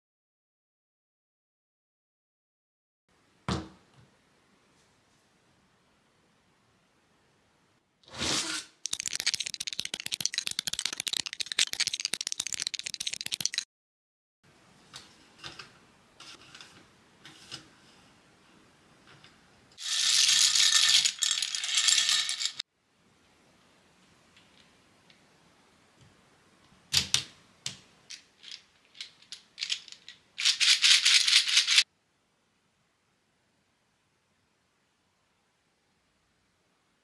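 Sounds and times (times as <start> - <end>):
plastic pieces rattling: 8.8 - 13.6, 19.8 - 22.6, 28.1 - 31.8.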